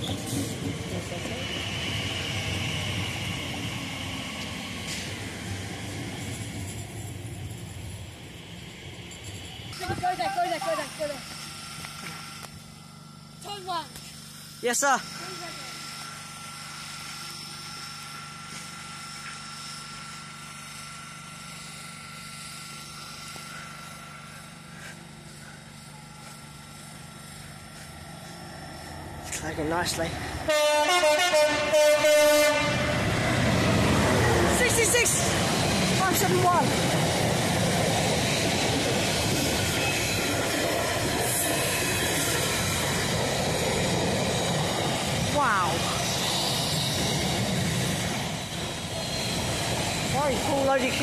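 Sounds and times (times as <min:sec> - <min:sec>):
train electrical hum: 0:00.0 - 0:51.0
thin high whine: 0:08.5 - 0:31.8.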